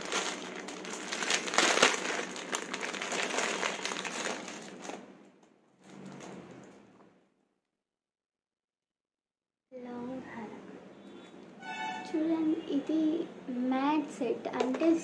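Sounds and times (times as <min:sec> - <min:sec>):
plastic wrapper crinkling: 0:00.0 - 0:06.4.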